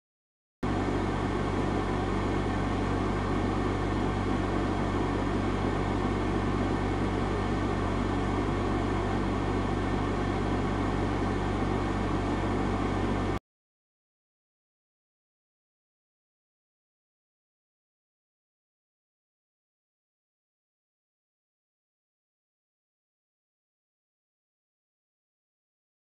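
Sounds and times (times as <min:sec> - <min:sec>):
steady low hum: 0:00.6 - 0:13.4.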